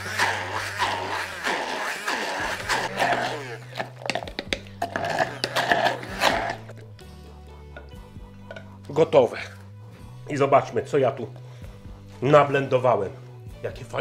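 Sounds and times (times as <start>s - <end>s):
immersion blender in glass jar: 0.0s - 6.8s
background music: 0.0s - 14.0s.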